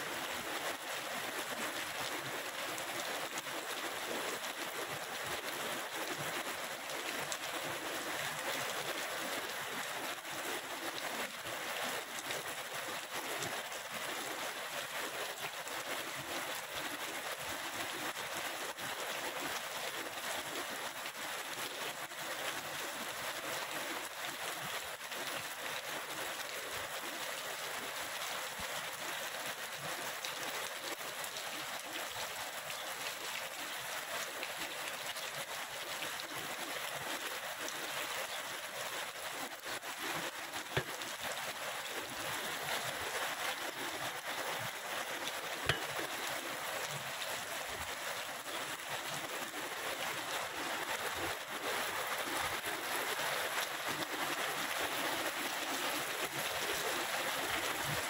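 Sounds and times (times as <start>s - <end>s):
raindrop taps: 40.7s - 41.0s, 45.6s - 46.1s.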